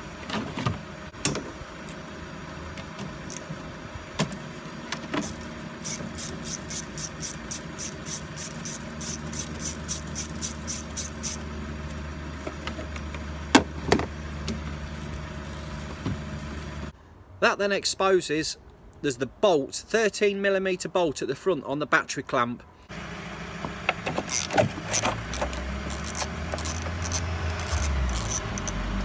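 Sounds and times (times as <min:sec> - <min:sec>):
ratchet wrench clicking: 0:05.2 - 0:11.4, 0:24.3 - 0:29.0.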